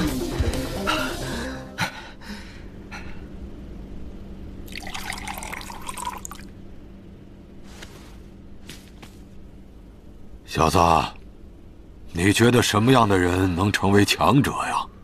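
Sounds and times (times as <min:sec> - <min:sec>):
liquid dripping: 0:04.6 - 0:06.5
liquid trickling and splashing: 0:04.7 - 0:06.5.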